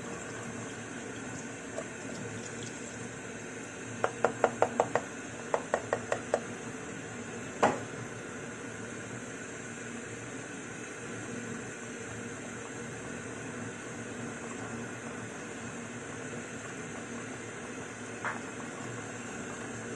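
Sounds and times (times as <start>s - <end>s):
liquid pouring into metal pot: 0.1s - 3.2s
carton knocking on pot: 4.0s - 6.4s.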